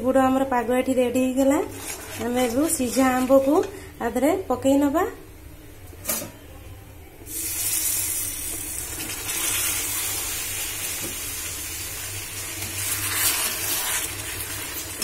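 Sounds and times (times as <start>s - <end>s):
syrup sizzling and hissing: 7.3s - 15.0s.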